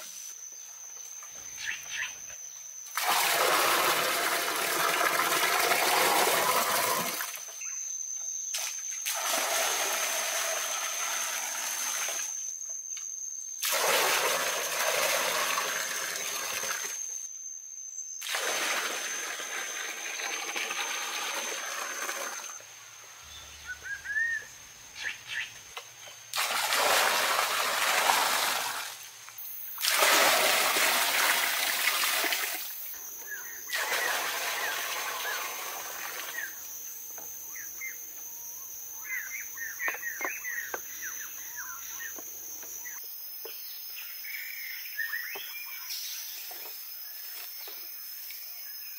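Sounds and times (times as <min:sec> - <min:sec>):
bird chirps: 0:01.3 - 0:02.7, 0:23.3 - 0:26.2, 0:37.4 - 0:42.2, 0:44.0 - 0:46.6
water pouring and splashing: 0:02.9 - 0:07.4, 0:08.6 - 0:12.3, 0:13.6 - 0:17.0, 0:18.2 - 0:22.5, 0:26.3 - 0:29.0, 0:29.8 - 0:32.8, 0:33.7 - 0:36.4.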